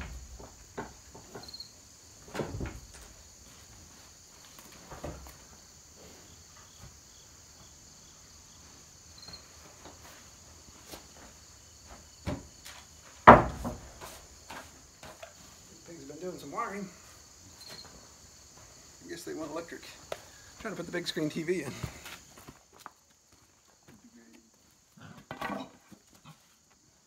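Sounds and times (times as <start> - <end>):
insect chirring: 0.0 - 25.0
wooden boards knocking: 13.2 - 14.1.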